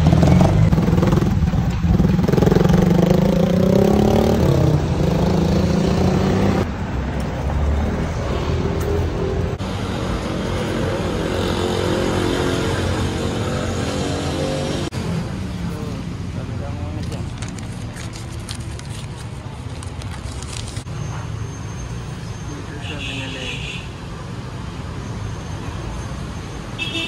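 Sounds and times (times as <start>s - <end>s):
vehicle engine revving: 0.0s - 6.7s.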